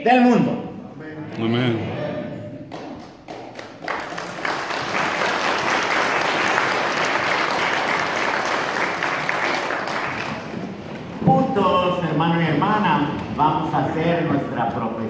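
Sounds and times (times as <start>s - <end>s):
crowd applauding: 2.7s - 11.0s.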